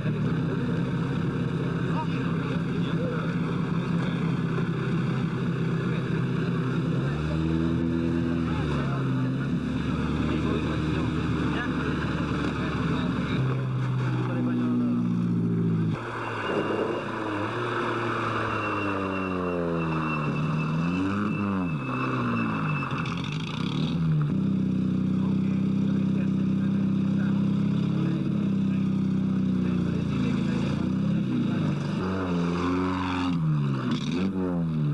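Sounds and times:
car engine revving: 0.0s - 34.9s
road noise: 0.0s - 34.9s.

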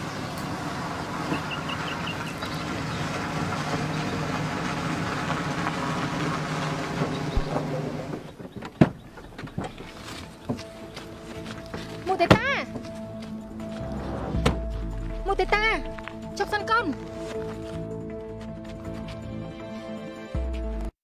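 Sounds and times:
car driving on dirt road: 0.0s - 19.3s.

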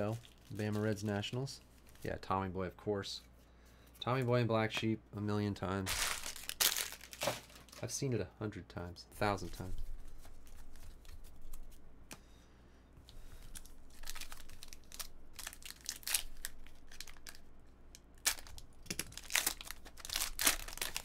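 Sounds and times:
foil wrapper crinkling and tearing: 5.9s - 7.8s, 13.4s - 17.5s, 18.2s - 21.0s.

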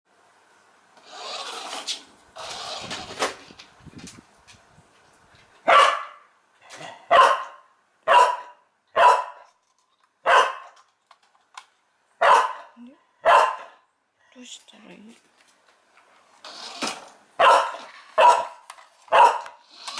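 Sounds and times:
dog barking: 5.7s - 9.5s, 10.2s - 10.8s, 12.2s - 13.8s, 17.4s - 19.6s.

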